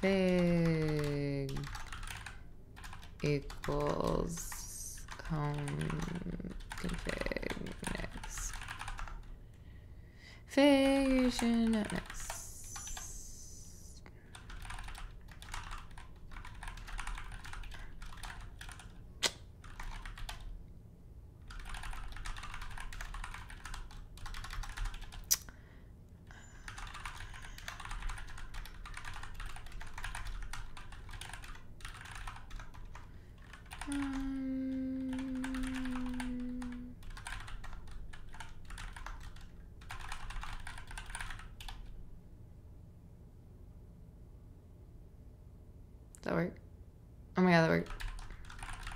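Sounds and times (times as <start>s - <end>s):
typing on computer keyboard: 0.0s - 9.3s, 10.8s - 13.2s, 14.3s - 19.0s, 19.6s - 20.5s, 21.4s - 25.4s, 26.7s - 42.0s, 47.9s - 48.9s
steady low hum: 0.0s - 48.9s.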